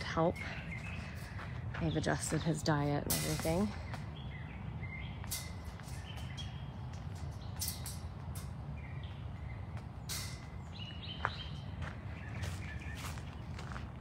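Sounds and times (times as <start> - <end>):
footsteps crunching: 0.0 - 4.2, 9.7 - 14.0
steady low rumble: 0.0 - 14.0
birds whistling: 3.7 - 7.9, 8.7 - 13.8.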